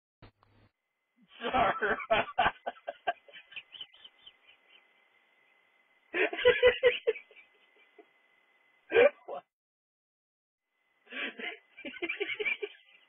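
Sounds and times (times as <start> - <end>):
person laughing: 1.3 - 4.2, 6.1 - 8.1, 8.9 - 9.4, 11.1 - 13.0.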